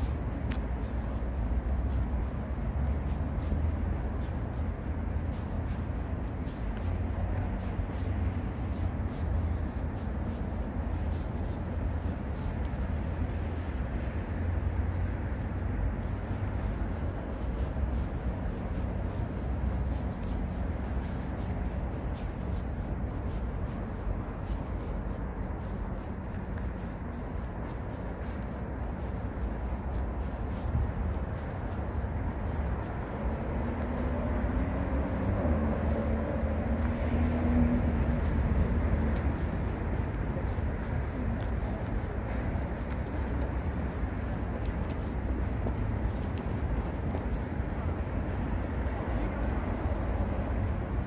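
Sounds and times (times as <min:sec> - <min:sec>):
low city rumble: 0:00.0 - 0:51.0.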